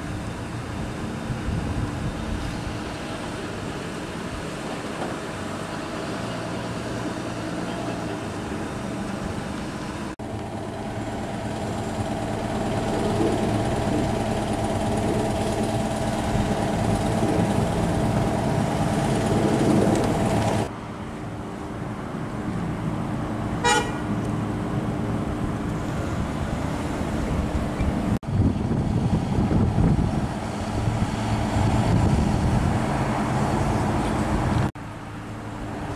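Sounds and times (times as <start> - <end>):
road traffic hum: 0.0 - 35.9
short high car horn toot: 23.6 - 24.1.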